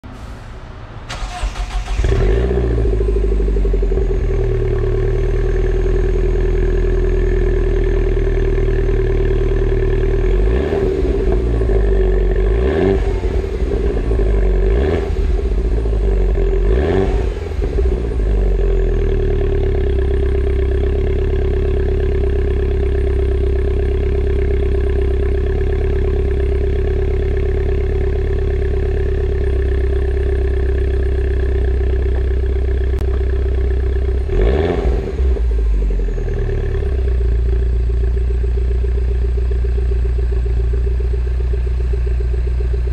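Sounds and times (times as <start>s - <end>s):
engine throttle blips: 0.0s - 6.6s
car engine idling: 0.0s - 42.9s.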